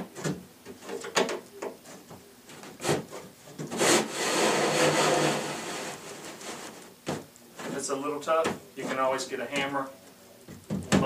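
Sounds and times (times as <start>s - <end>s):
wood scraping against wood: 1.8s - 7.0s
short knocks and scrapes: 1.8s - 9.7s.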